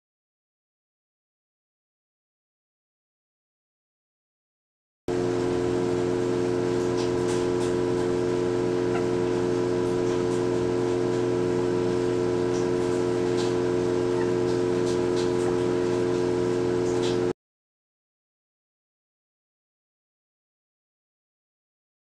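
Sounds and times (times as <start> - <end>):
stepper motor humming: 5.1 - 17.3.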